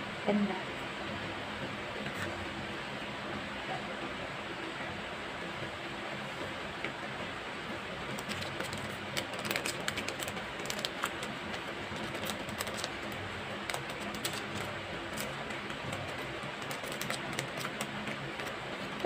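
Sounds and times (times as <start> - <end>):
plastic packaging handled: 8.1 - 18.5.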